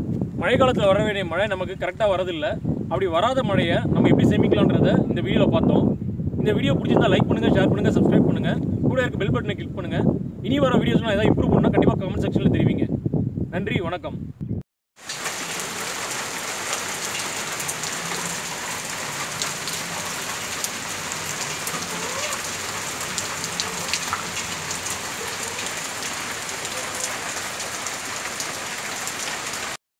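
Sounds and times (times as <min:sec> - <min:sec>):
single raindrops: 0:15.0 - 0:29.8
steady rain hiss: 0:15.0 - 0:29.8.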